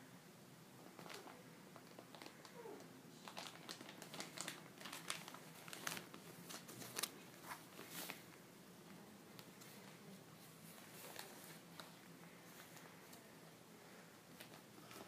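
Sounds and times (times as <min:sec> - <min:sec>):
plastic sleeve crinkling: 0:00.9 - 0:08.4, 0:10.6 - 0:13.2.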